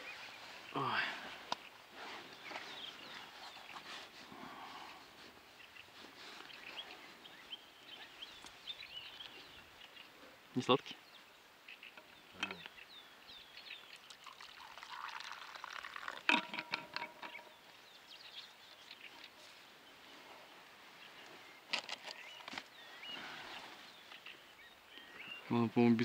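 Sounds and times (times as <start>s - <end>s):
small birds chirping: 0.0s - 26.0s
liquid pouring: 14.0s - 17.4s.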